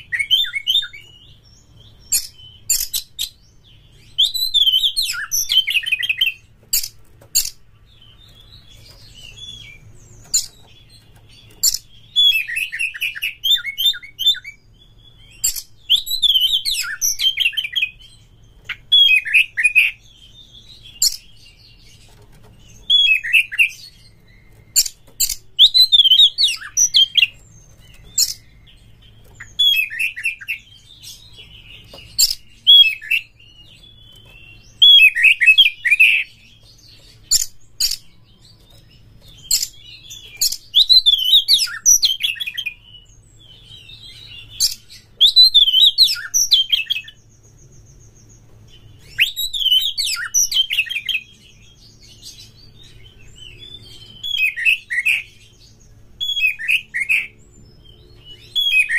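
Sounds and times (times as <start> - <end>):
bird singing whistled phrases: 0.0 - 3.4, 4.0 - 6.9, 11.6 - 21.7, 22.8 - 27.4, 28.0 - 38.1, 39.4 - 47.2, 49.0 - 58.9.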